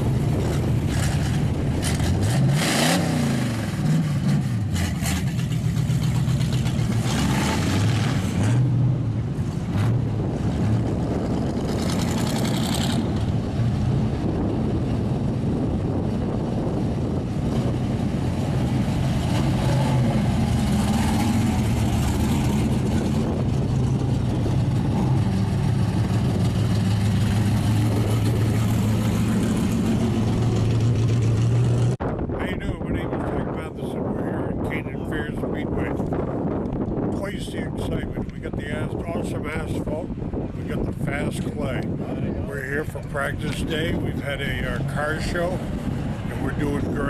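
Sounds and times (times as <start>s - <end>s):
engine throttle blips: 0.0s - 47.0s
race car engines passing: 0.0s - 47.0s.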